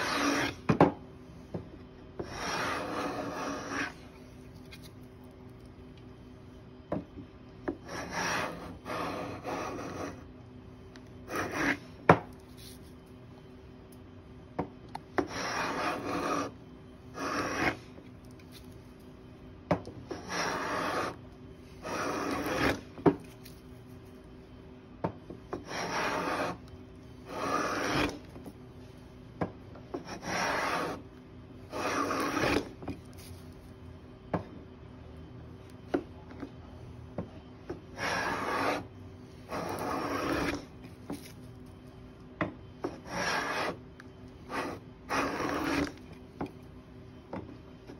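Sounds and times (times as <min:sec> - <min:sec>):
hand plane rasping on wood: 0:00.0 - 0:00.5, 0:02.2 - 0:03.9, 0:15.3 - 0:16.5, 0:17.2 - 0:17.8, 0:20.1 - 0:21.2, 0:21.8 - 0:22.8, 0:25.7 - 0:26.6, 0:27.3 - 0:28.2, 0:30.1 - 0:31.0, 0:31.7 - 0:32.7, 0:38.0 - 0:38.8, 0:39.5 - 0:40.6, 0:43.1 - 0:43.7, 0:44.5 - 0:45.9.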